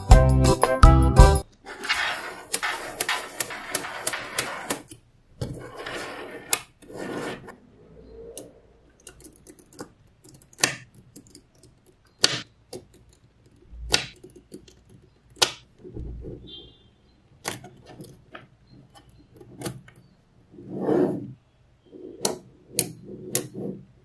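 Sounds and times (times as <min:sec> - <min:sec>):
magnetic balls snapping together: 0:09.2 - 0:15.7.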